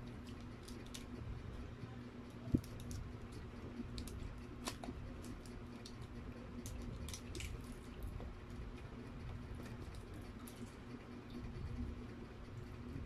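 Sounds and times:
steady low hum: 0.0 - 13.0
plastic sachet crinkling: 3.9 - 7.9.

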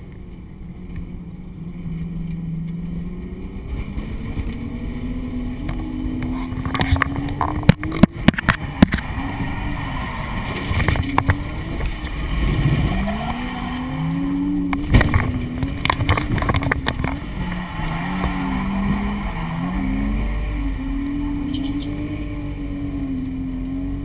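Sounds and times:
car engine revving: 0.0 - 24.0
sharp knocks and clatter: 14.8 - 17.2.

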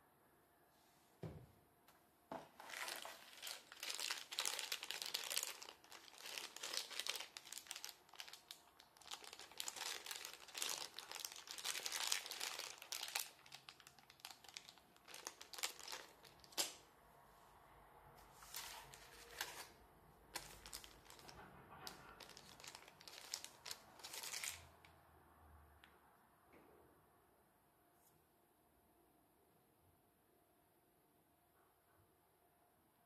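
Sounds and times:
soft thump: 1.2 - 1.6
plastic bag crinkling: 2.4 - 16.8, 18.4 - 24.8.

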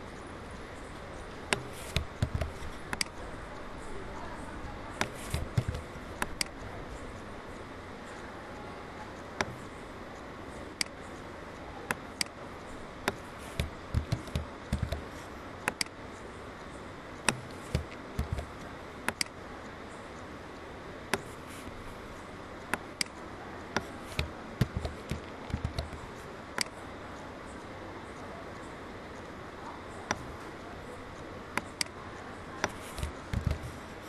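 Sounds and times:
steady background hiss: 0.0 - 34.0
computer mouse buttons clicking: 0.6 - 3.7, 4.7 - 6.7, 9.1 - 9.8, 10.7 - 11.3, 11.9 - 16.3, 17.2 - 19.4, 21.1 - 26.8, 28.6 - 34.0.

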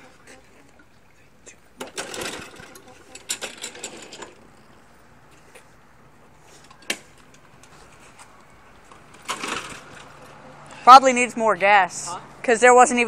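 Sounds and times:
clicks and rattles: 1.8 - 4.4, 8.8 - 10.4.

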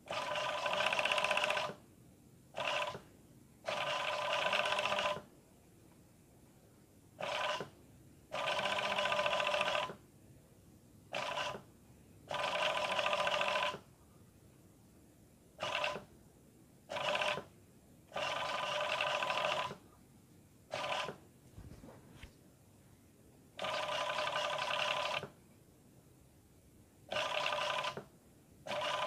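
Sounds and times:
sewing machine stitching: 0.0 - 1.8, 3.7 - 5.2, 8.4 - 10.0, 12.3 - 13.8, 15.6 - 16.1, 16.9 - 17.5, 18.1 - 19.8, 20.7 - 21.2, 23.6 - 25.3, 27.1 - 28.1, 28.7 - 29.0.

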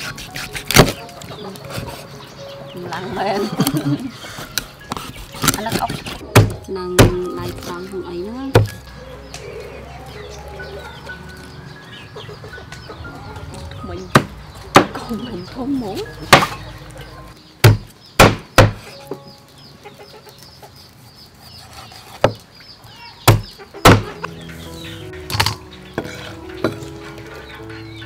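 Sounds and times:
knife chopping fish on wooden board: 0.0 - 1.0.

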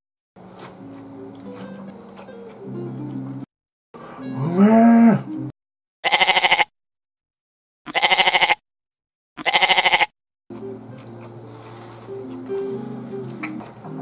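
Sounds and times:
goat bleating: 6.0 - 6.7, 7.9 - 8.6, 9.4 - 10.1.

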